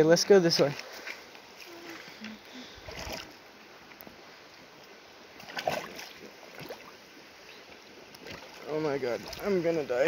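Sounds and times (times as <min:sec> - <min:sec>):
running water: 0:00.0 - 0:10.0
water sloshing and splashing: 0:00.3 - 0:10.0
footsteps wading through water: 0:00.5 - 0:03.4, 0:05.3 - 0:07.0, 0:07.6 - 0:09.6.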